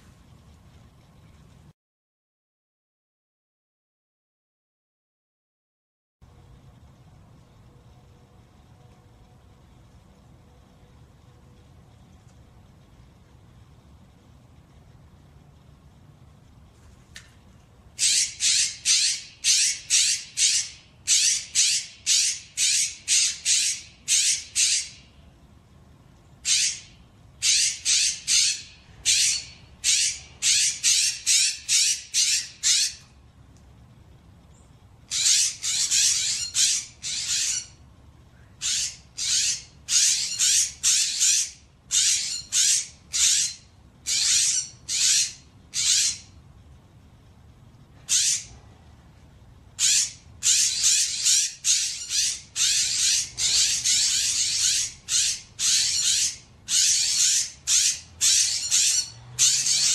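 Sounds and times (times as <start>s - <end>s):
jays screeching: 18.0s - 25.0s, 49.8s - 59.9s.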